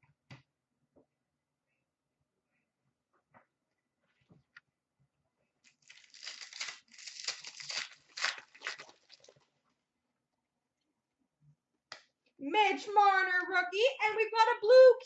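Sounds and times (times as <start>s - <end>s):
foil wrapper tearing and crinkling: 5.6s - 9.4s.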